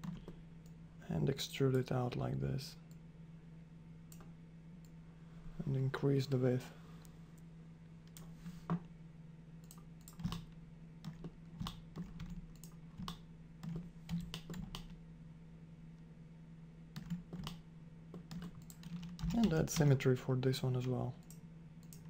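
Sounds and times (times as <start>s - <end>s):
faint steady low hum: 0.0s - 22.0s
keyboard and mouse clicks: 9.6s - 10.5s, 11.1s - 14.9s, 17.0s - 20.0s.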